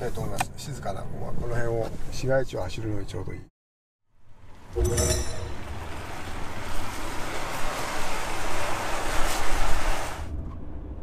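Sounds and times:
tyre hiss on wet road: 5.7 - 10.3.

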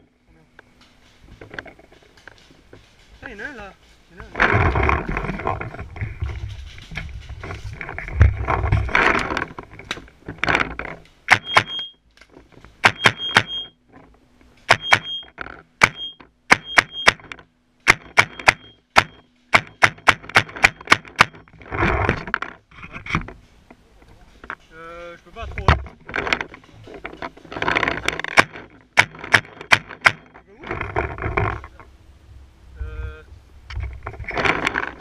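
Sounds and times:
rumbling movement noise: 0.0 - 16.5, 17.2 - 35.0
paintball gun shots: 12.8 - 13.6, 15.8 - 21.4.

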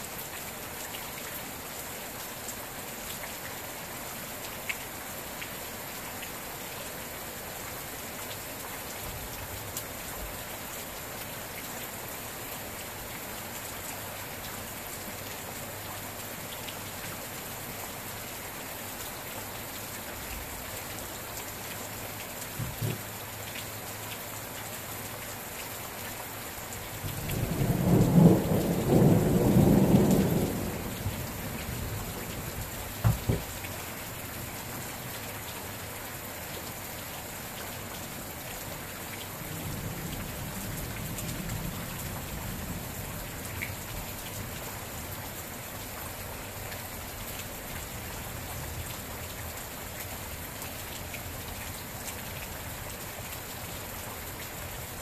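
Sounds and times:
rain falling: 0.0 - 55.0
thunder rumble: 27.3 - 33.5.

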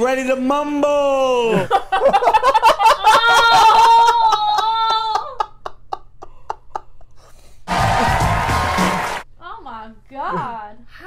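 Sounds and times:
people laughing: 1.5 - 6.9
crowd noise: 7.7 - 9.2.

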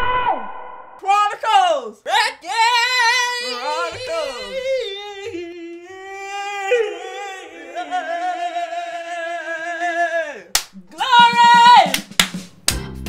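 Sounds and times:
sharp clap-like hit: 10.5 - 10.8, 11.6 - 12.8.

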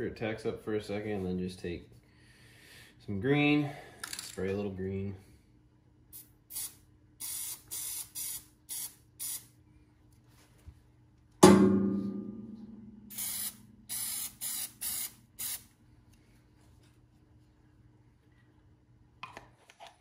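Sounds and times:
spray paint can hissing: 6.2 - 9.5, 13.1 - 15.7
loud ringing knock: 11.4 - 13.0.

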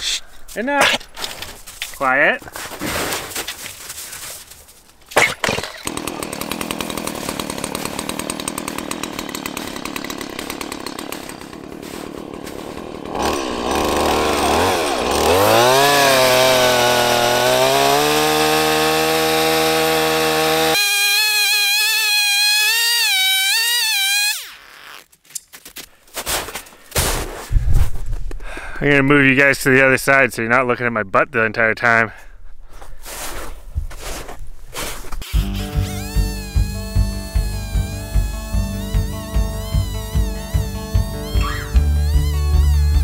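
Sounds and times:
chainsaw cutting log: 5.2 - 25.1, 34.8 - 43.0.

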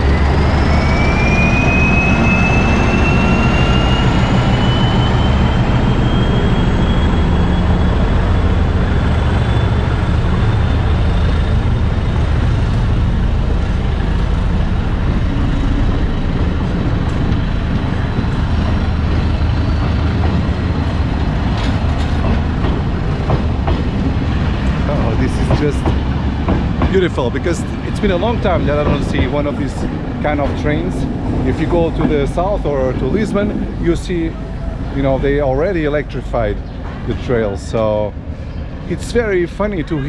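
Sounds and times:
high whine rising in pitch: 0.0 - 20.1
diesel locomotive engine rumble: 0.0 - 40.0.

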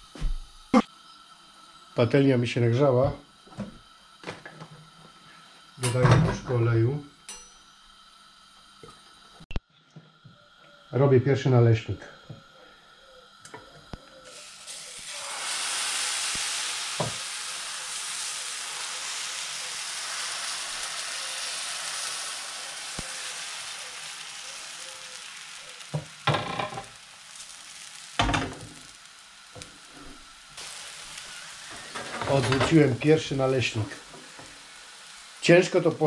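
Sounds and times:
batter sizzling in frying pan: 13.9 - 36.0.

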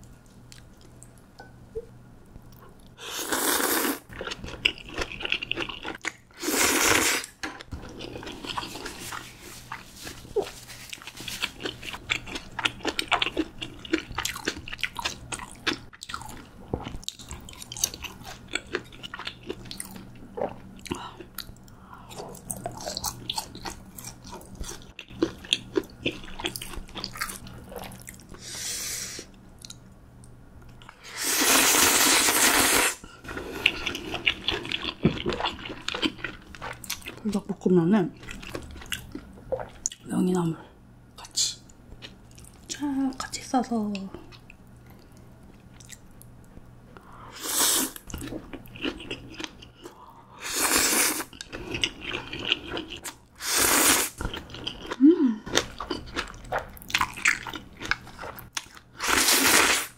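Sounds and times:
loud noodle slurps: 3.0 - 4.0, 6.4 - 7.3, 53.4 - 54.2, 59.0 - 59.9
chewing with small clicks: 29.6 - 31.0, 41.7 - 47.1.

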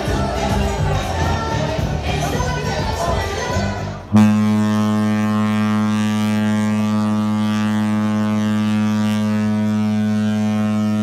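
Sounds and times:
ship's horn long deep blast: 4.1 - 11.0.

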